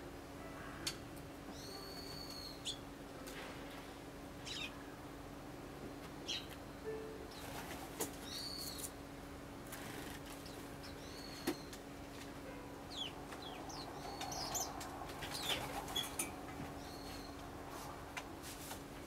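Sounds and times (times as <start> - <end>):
sparrows chirping: 1.5 - 2.8, 4.4 - 4.9, 6.2 - 6.6, 7.3 - 8.9, 10.3 - 11.8, 12.9 - 17.5
wing flutters: 9.6 - 10.7.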